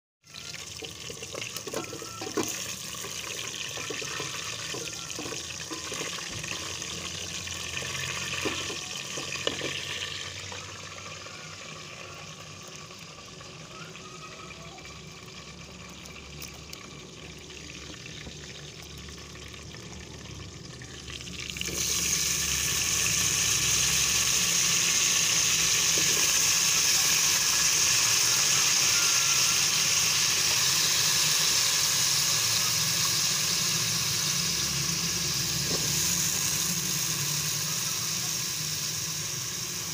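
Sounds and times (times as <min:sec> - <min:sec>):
food sizzling in hot oil: 0:00.2 - 0:39.9
wooden spatula stirring in pot: 0:01.3 - 0:06.7.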